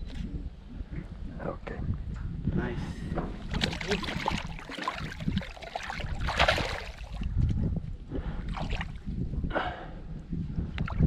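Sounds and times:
water splashing and sloshing: 3.4s - 7.3s, 8.4s - 9.2s.

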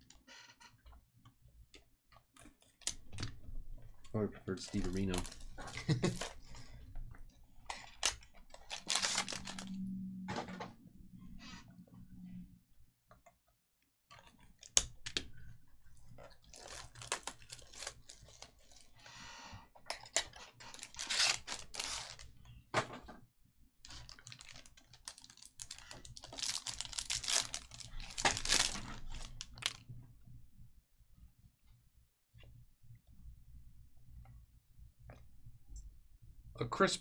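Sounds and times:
foil wrappers crinkling and tearing: 4.5s - 6.7s, 7.8s - 9.8s, 16.2s - 19.0s, 20.0s - 22.4s, 23.9s - 29.8s.

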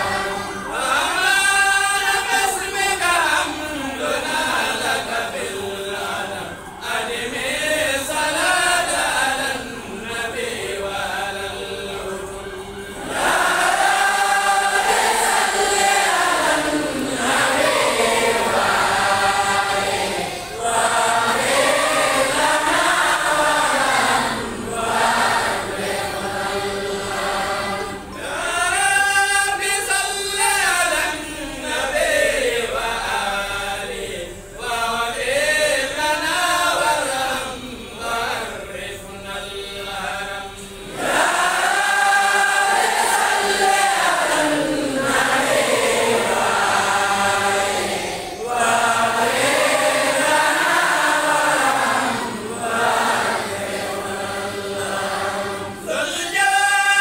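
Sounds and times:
voices chanting in unison: 0.0s - 57.0s.

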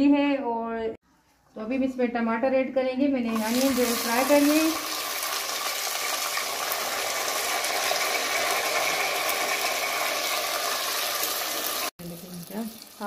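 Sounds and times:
tomatoes sizzling in hot fat: 3.3s - 13.0s.

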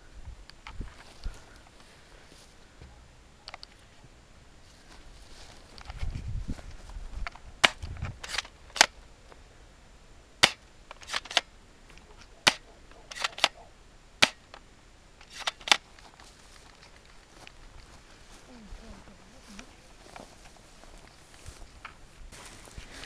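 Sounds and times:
airsoft gun shots: 10.4s - 11.4s, 12.4s - 13.6s, 14.2s - 14.5s.

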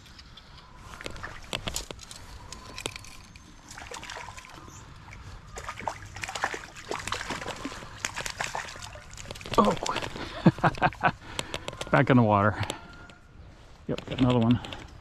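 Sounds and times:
stream water splashing: 3.7s - 10.1s.

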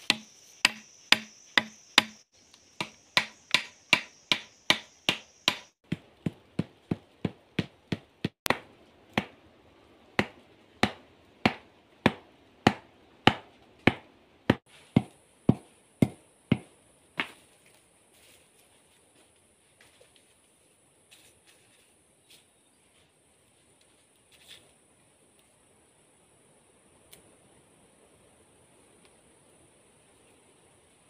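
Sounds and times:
machete chopping bamboo: 0.0s - 9.4s, 10.2s - 17.4s.

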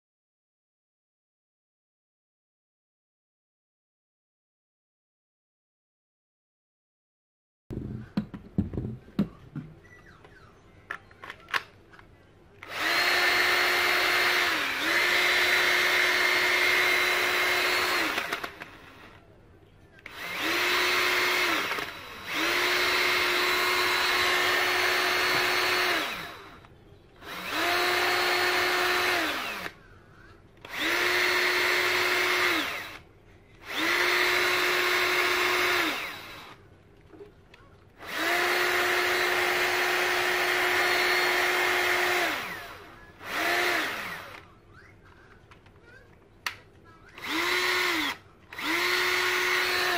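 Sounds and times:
cordless drill motor whining: 12.6s - 19.2s, 20.0s - 29.8s, 30.6s - 36.6s, 38.0s - 44.5s, 47.2s - 49.9s
drill handling clicks: 47.2s - 49.9s.

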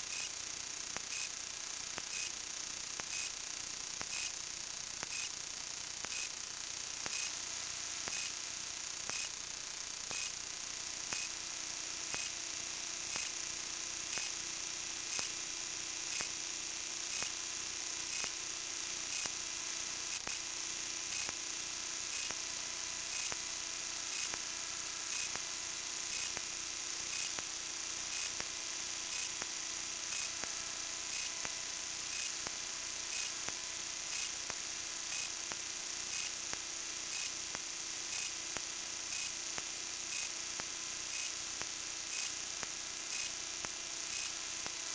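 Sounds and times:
electronic hiss and hum: 0.0s - 44.9s
faint tick: 5.0s - 5.3s, 7.0s - 7.3s, 12.1s - 12.4s, 14.1s - 14.3s.

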